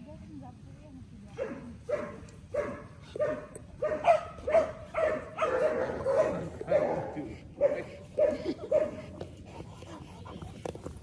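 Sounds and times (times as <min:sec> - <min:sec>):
dog barking: 0:01.4 - 0:09.0.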